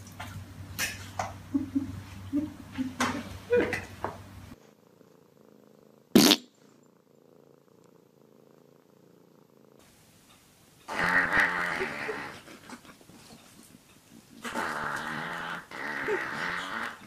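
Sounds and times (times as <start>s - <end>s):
cat purring: 4.5s - 17.0s.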